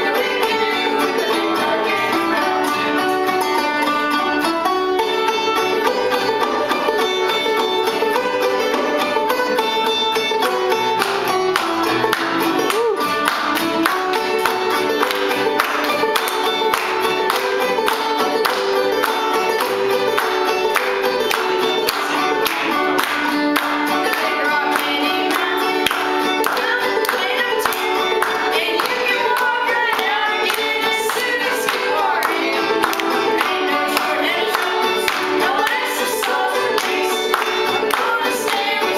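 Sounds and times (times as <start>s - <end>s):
person singing: 0.0s - 3.7s, 11.9s - 13.3s, 23.6s - 38.9s
acoustic guitar: 0.0s - 38.9s
banjo: 0.0s - 38.9s.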